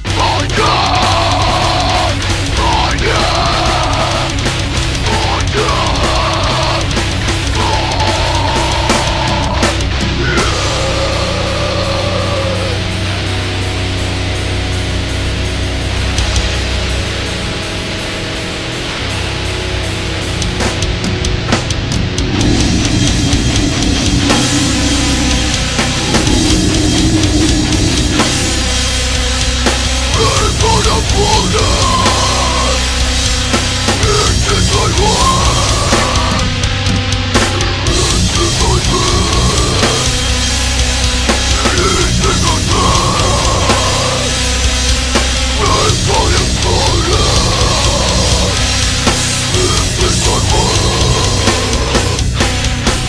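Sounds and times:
metalcore band playing: 0.0s - 53.0s
rising and falling sweeps: 22.2s - 29.2s.

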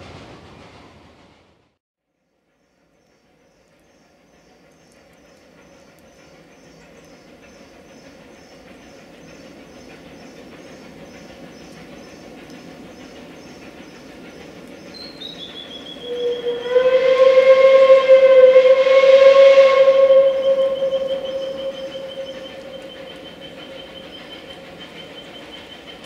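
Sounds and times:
approaching train noise: 0.0s - 26.0s
steam locomotive whistle blast: 15.0s - 25.4s.

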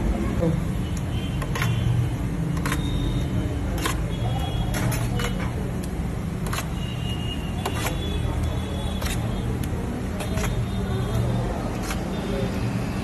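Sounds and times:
low rumble of traffic: 0.0s - 13.0s
metal spoon clinking on steel tray: 4.6s - 5.6s.

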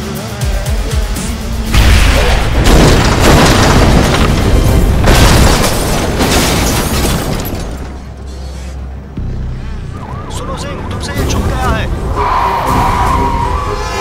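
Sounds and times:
film music score: 0.0s - 14.0s
explosion booms: 1.7s - 6.5s
car crashing: 1.7s - 8.2s.

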